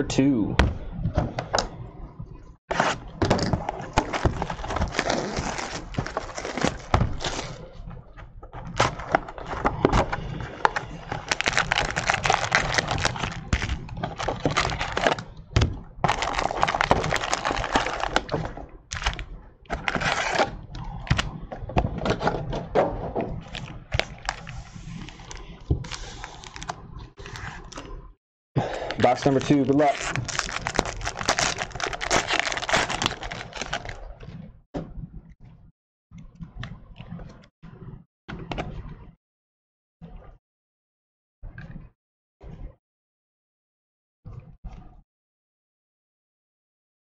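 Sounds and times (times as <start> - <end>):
plastic wrap crinkling and tearing: 3.7 - 7.7, 8.8 - 15.3, 16.0 - 21.3, 23.5 - 27.9, 28.9 - 34.0.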